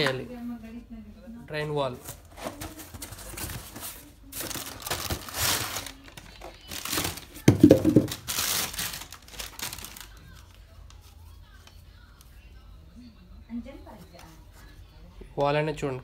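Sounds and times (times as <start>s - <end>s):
plastic wrapping crinkling: 2.2s - 11.1s.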